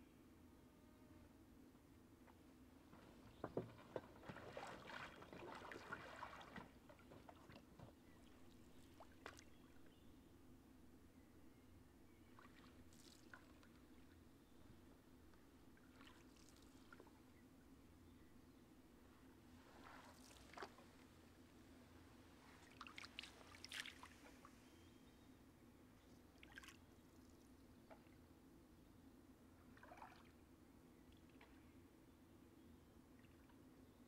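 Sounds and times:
faint paddle strokes: 2.3s - 9.5s, 19.5s - 21.2s
water splashing and trickling: 3.3s - 9.6s, 12.4s - 13.8s, 15.8s - 17.1s, 19.7s - 20.8s, 22.6s - 24.5s, 29.7s - 30.4s.

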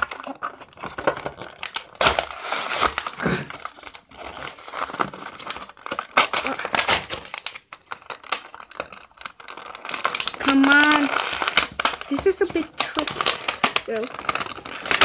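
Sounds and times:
cardboard tearing: 0.0s - 15.0s
plastic packaging crinkling: 0.0s - 15.0s.

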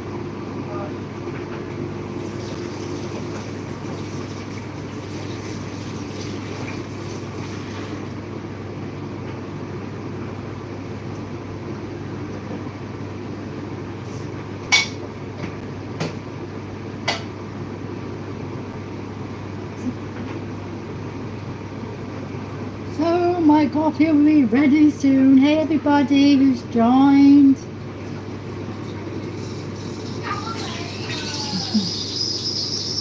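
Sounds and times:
espresso machine humming: 26.2s - 33.0s.

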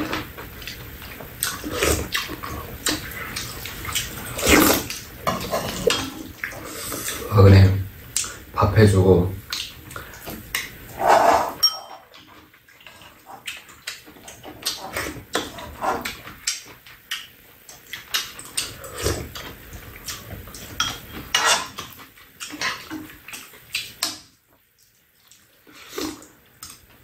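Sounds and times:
people chewing: 0.0s - 7.3s, 8.1s - 8.5s, 9.5s - 24.2s, 24.8s - 27.0s
metal spoons clinking on dishes: 11.6s - 12.2s.

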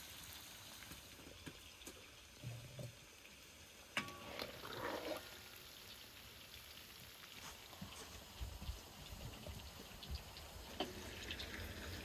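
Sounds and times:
hot oil sizzling: 0.0s - 12.0s
oil crackling: 3.2s - 12.0s.

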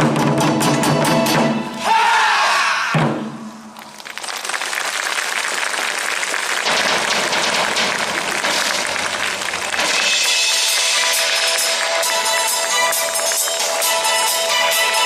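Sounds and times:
crowd applauding: 3.8s - 15.0s
music with held notes: 9.9s - 15.0s.

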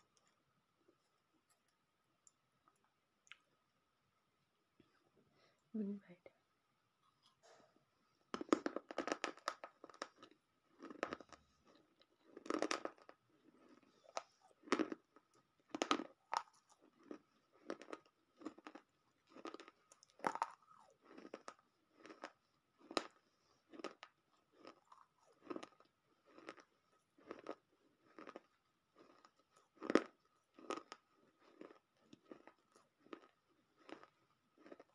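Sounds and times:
crunching and chewing clay: 8.2s - 34.9s.

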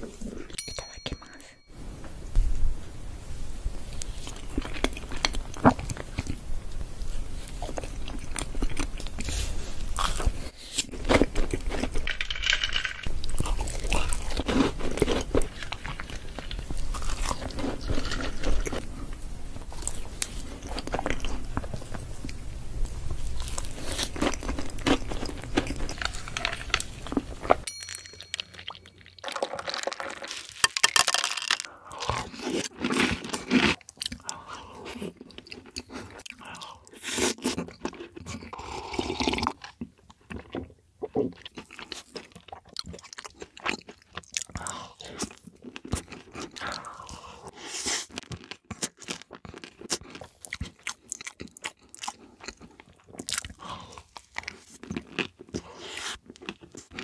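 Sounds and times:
chewing and crunching cookie: 3.9s - 57.0s
person biting and chewing dessert: 4.0s - 27.7s, 28.4s - 57.0s.

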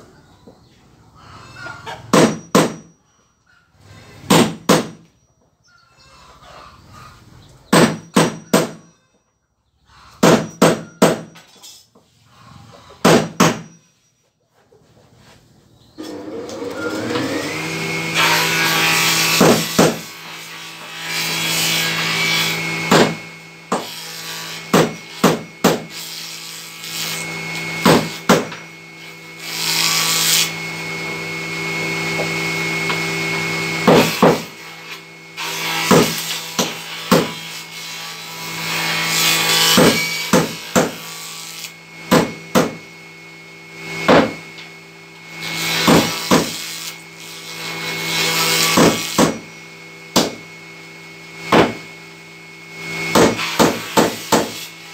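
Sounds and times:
table saw cutting wood: 16.0s - 54.9s
sharp wooden knocks: 51.5s - 51.8s.

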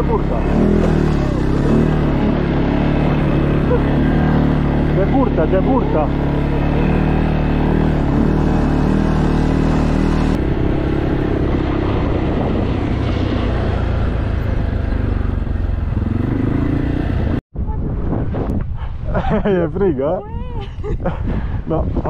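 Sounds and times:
quad bike engine running: 0.0s - 17.4s.

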